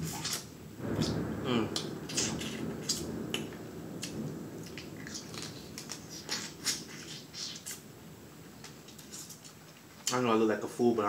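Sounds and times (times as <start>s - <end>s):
wet mouth smacks: 0.1s - 3.1s, 4.0s - 7.8s.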